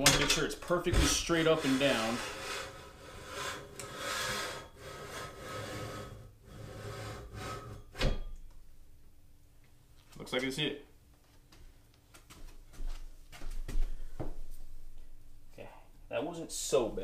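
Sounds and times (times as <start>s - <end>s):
metal scraping and rubbing: 0.0s - 8.2s.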